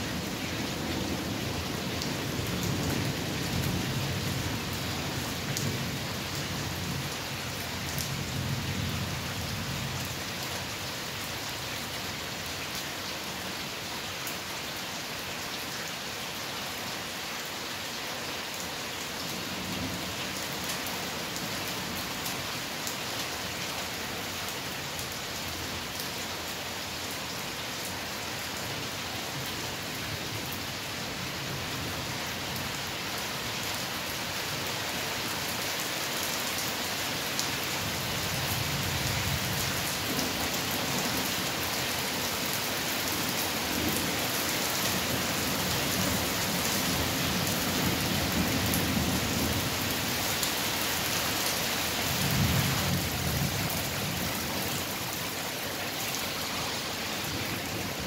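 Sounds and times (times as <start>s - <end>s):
heavy rain falling: 0.0s - 58.0s.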